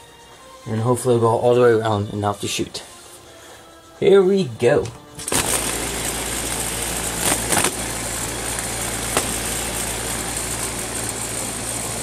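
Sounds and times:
fan motor humming: 4.8 - 12.0
sharp ticks of blade shredding paper: 5.2 - 12.0.

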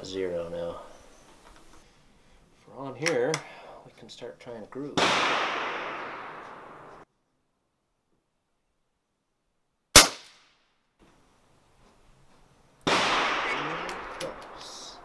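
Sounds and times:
air rifle firing crack: 5.0 - 7.0, 10.0 - 10.5, 12.8 - 15.0.

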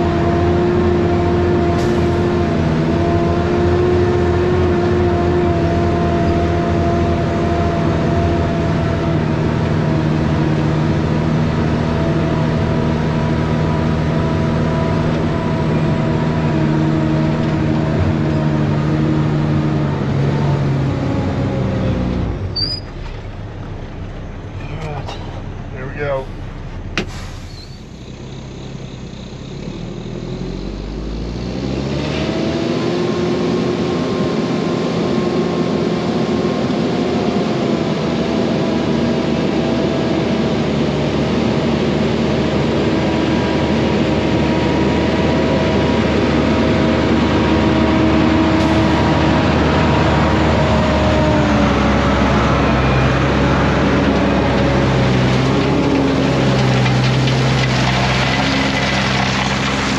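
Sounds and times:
diesel engine revving: 0.0 - 59.9
rock being dumped: 55.0 - 59.9.

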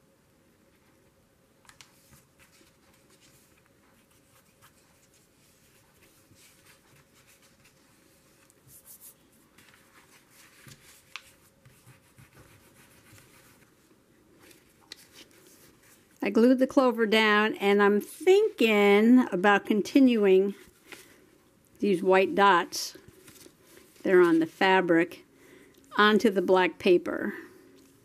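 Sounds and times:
paper rustling and tapping: 9.5 - 13.7.

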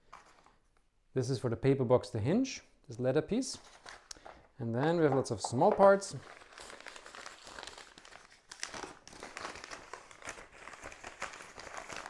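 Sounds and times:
paper bag crinkling: 5.9 - 12.0.

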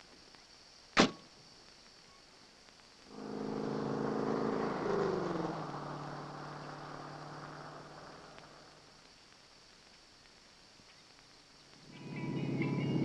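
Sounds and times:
car driving past: 3.1 - 9.0.

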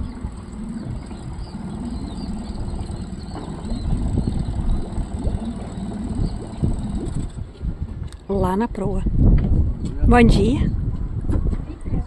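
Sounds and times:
outboard motor idling: 0.0 - 8.4.

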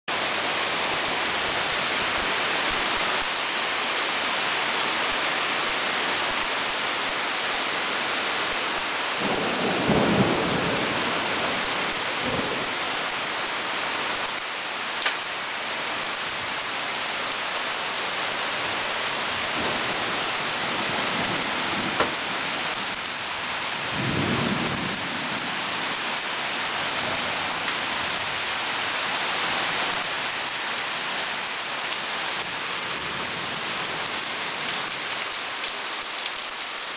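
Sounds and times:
heavy rain on trees and deck: 0.1 - 36.9
thunder rumbling: 9.2 - 13.2, 19.4 - 22.9, 23.8 - 25.8.

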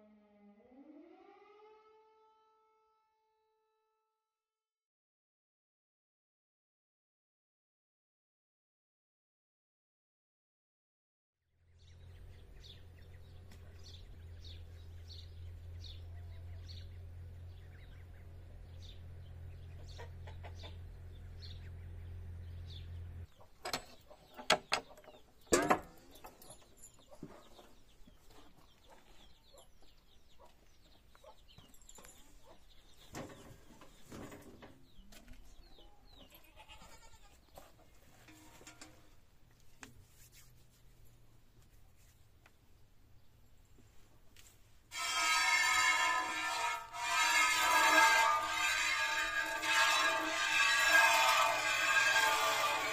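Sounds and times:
birds cheeping: 11.7 - 34.1
padlock and bolt clanking: 23.6 - 27.1.

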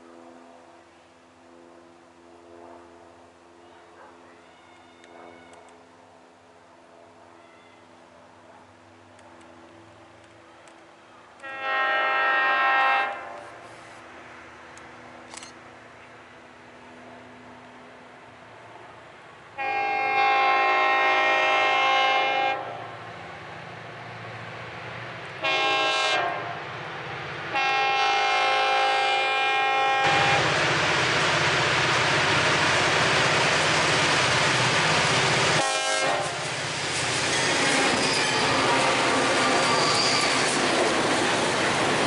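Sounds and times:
freight train passing: 0.0 - 42.0
train air horn blasts: 11.4 - 13.6, 19.6 - 22.9, 25.4 - 26.6, 27.5 - 30.5, 35.6 - 36.4
wheels clacking on rail joints: 36.1 - 42.0.

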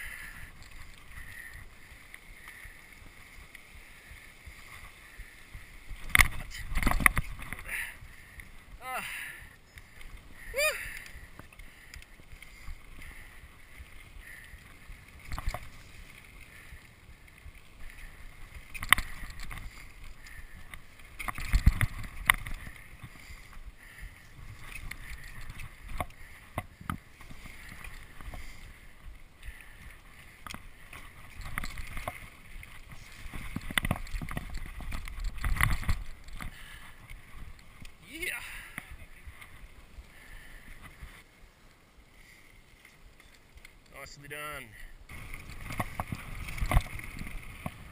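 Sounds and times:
bike tyres rolling on dirt: 0.0 - 47.9
bike knocking over rocks: 6.0 - 7.8, 15.2 - 15.9, 18.4 - 23.2, 30.4 - 37.1, 45.1 - 47.9.

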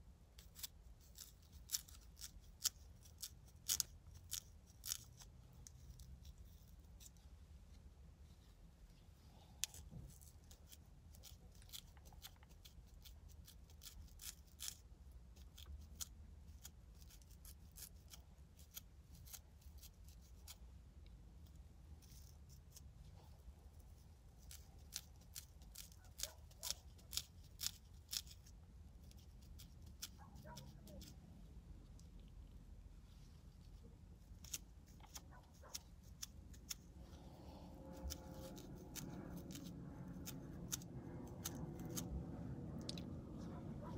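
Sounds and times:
brush scratching scalp: 0.4 - 7.3, 33.3 - 42.2.

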